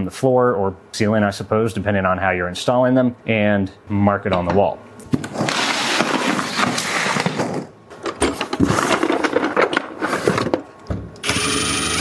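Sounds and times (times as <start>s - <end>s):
parts clattering in cardboard box: 5.1s - 10.7s
cordless drill running: 11.2s - 12.0s.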